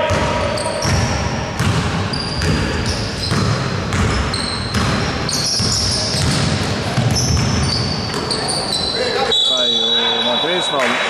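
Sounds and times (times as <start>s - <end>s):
basketball bouncing on hardwood: 0.0s - 8.3s
sneakers squeaking: 0.0s - 11.0s.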